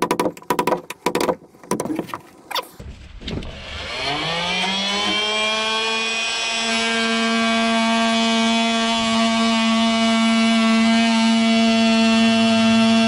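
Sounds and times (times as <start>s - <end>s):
oscillating multi-tool cutting wood: 3.4s - 13.0s.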